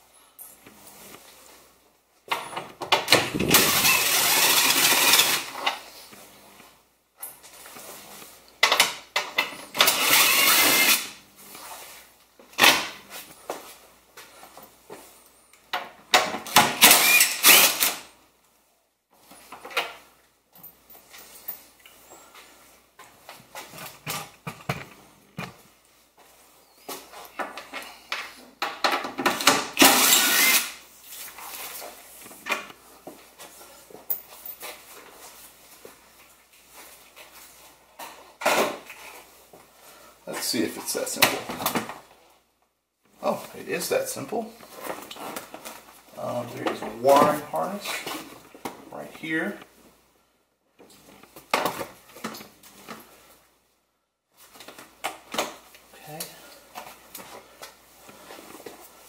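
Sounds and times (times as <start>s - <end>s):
tools and plastic parts clattering: 2.3s - 5.8s
cordless drill running: 3.3s - 5.6s, 9.8s - 11.1s, 16.8s - 18.0s, 29.8s - 30.8s.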